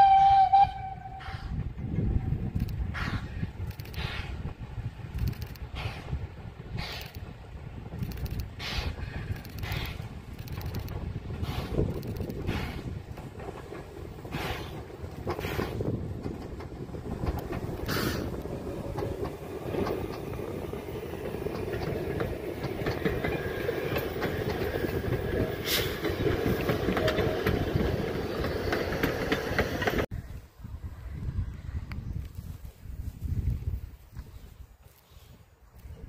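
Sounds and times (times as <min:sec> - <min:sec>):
steam train rumble: 0:00.0 - 0:30.2
wheels clacking over rail joints: 0:01.4 - 0:30.1.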